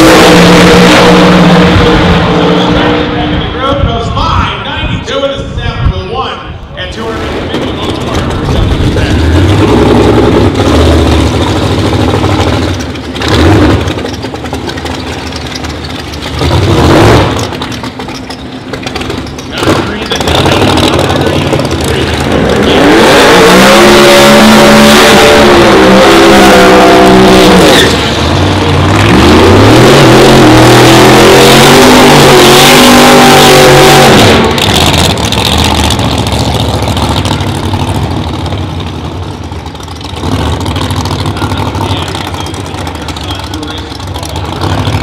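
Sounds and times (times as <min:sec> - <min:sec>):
drag car engine revving: 0:00.0 - 0:04.2, 0:06.9 - 0:45.0
tyres spinning: 0:11.1 - 0:23.6.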